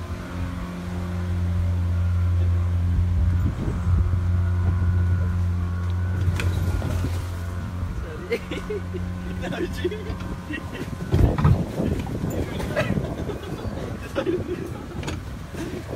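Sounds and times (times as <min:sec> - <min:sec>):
boat motor humming: 0:00.0 - 0:15.9.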